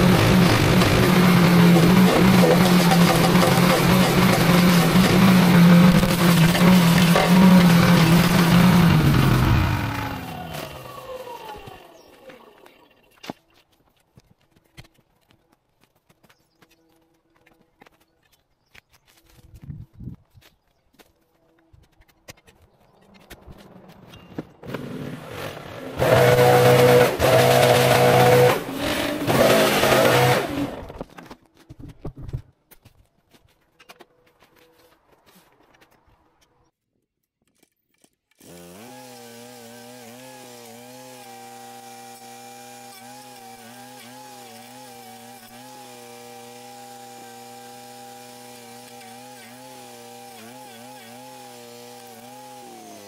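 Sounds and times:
chainsaw cutting wood: 0.0s - 13.4s, 24.4s - 31.1s, 38.4s - 53.0s.

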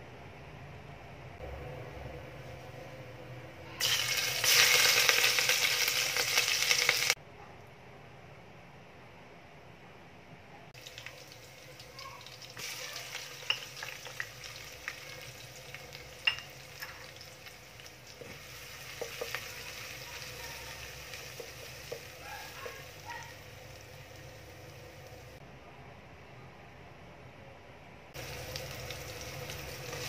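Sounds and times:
onions sizzling in hot oil: 3.8s - 7.2s, 10.8s - 25.4s, 28.2s - 30.0s
spoon clinking against pot: 16.2s - 16.6s.

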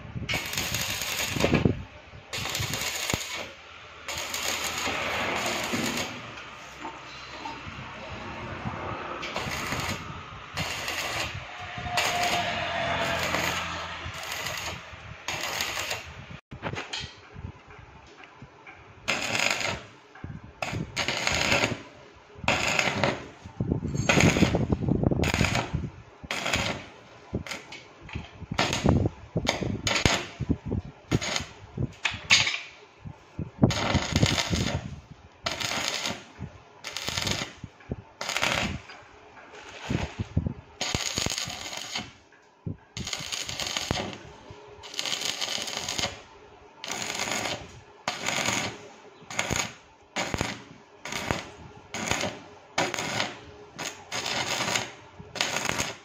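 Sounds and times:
welding arc crackling: 0.0s - 8.6s, 9.2s - 16.4s, 19.1s - 20.0s, 20.6s - 27.8s, 28.5s - 30.5s, 31.1s - 31.6s, 33.6s - 39.0s, 39.6s - 42.2s, 43.0s - 56.0s.

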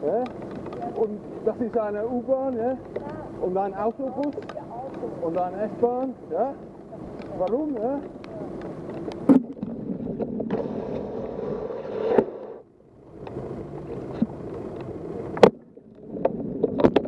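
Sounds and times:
sharp clicks: 3.8s - 6.1s.

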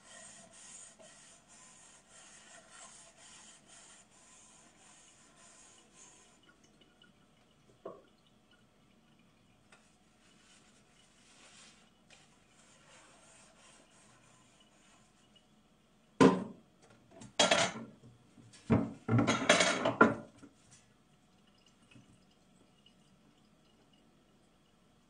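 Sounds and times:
faint hiss of water: 0.0s - 16.2s
dishes and cutlery clattering: 17.4s - 17.9s, 19.1s - 20.3s.

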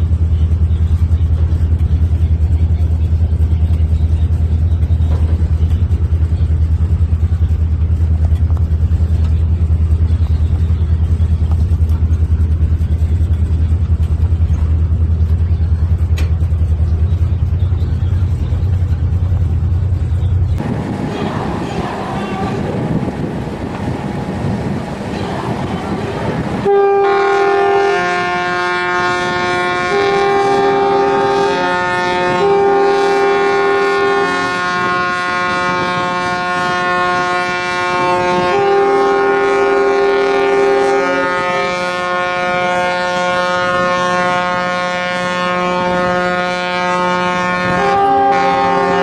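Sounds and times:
rushing noise: 20.6s - 26.7s
ships' horns: 26.5s - 49.0s.

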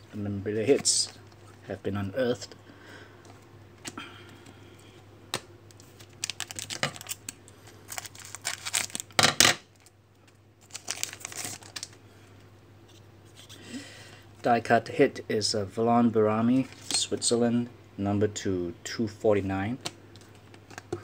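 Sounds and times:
foil pack crinkling and tearing: 5.9s - 9.9s, 10.6s - 12.0s.

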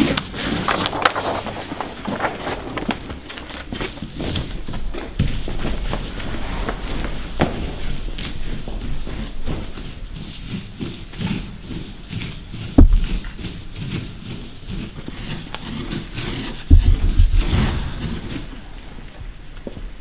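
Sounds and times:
footsteps on pavement: 2.0s - 15.6s
heavy rumbling knock: 4.4s - 14.2s, 16.6s - 19.4s
sharp thump: 12.8s - 13.6s, 16.7s - 17.9s.

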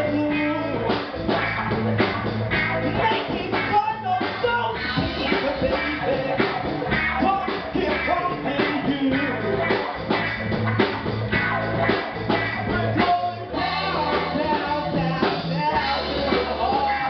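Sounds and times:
person singing lead vocals: 0.0s - 1.1s, 2.8s - 10.2s, 12.5s - 17.0s
bass notes: 0.0s - 17.0s
drum kit beat: 0.0s - 17.0s
electric guitar: 0.0s - 17.0s.

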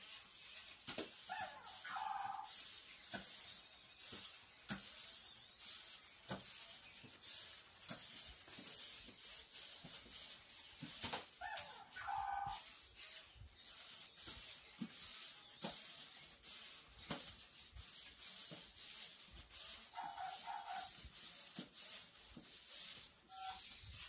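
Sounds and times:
small motors whirring: 0.0s - 24.0s
plastic feet tapping on floor: 6.3s - 6.6s
electronic chirp: 23.3s - 23.7s.

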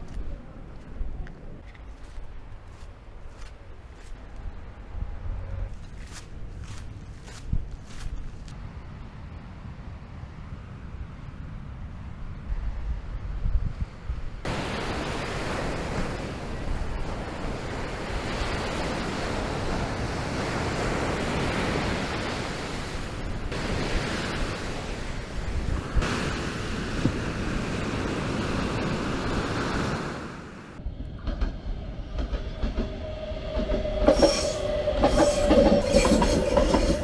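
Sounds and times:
wind buffeting microphone: 0.0s - 37.0s
surf breaking on sand and rocks: 14.4s - 31.4s.

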